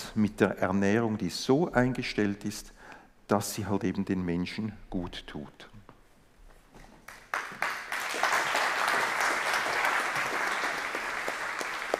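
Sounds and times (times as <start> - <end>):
audience applauding: 7.1 - 11.9.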